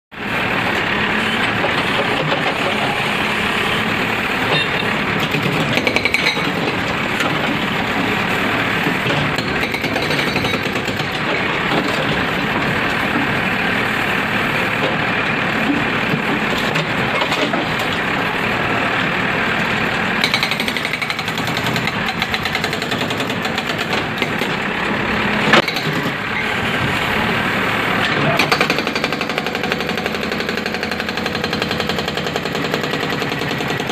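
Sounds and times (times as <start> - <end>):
hydraulic rock breaker pounding wall: 4.4 - 14.0, 20.2 - 24.6, 28.0 - 33.9.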